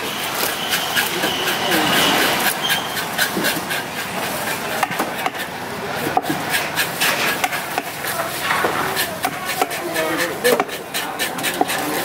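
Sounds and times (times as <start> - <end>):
knife scraping fish scales: 0.2 - 5.5, 6.2 - 12.0.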